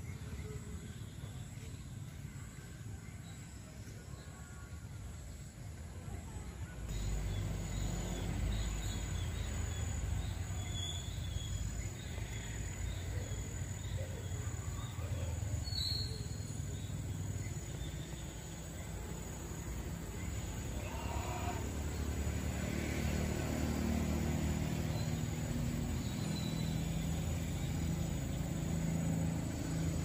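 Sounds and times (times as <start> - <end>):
bird chirps: 6.9 - 18.6
pulsing insect trill: 6.9 - 30.0.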